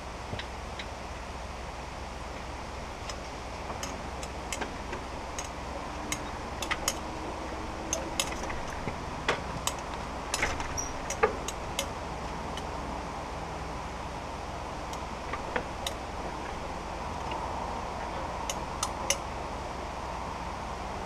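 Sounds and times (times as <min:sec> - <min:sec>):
steady low hum: 0:00.0 - 0:21.0
light clicks and ticks: 0:02.4 - 0:12.7, 0:14.8 - 0:19.3.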